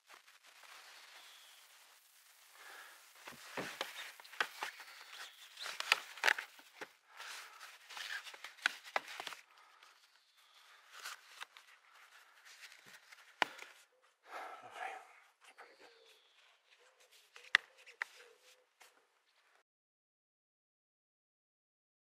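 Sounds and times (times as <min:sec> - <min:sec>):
cloth rustling: 0:02.4 - 0:13.8.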